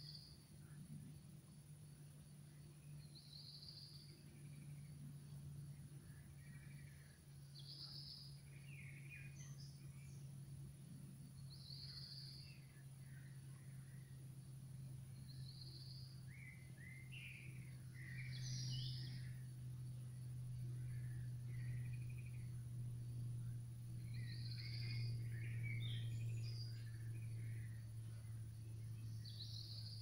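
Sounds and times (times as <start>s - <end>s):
steady low hum: 0.0s - 30.0s
birds chirping: 14.8s - 30.0s.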